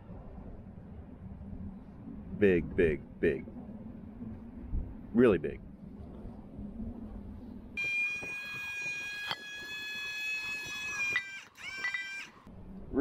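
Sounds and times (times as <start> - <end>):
high steady squeal: 7.4 - 12.5.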